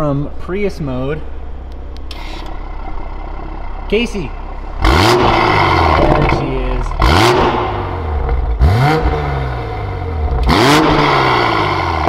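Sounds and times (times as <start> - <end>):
car engine idling: 0.0 - 12.0
engine revving: 2.0 - 12.0.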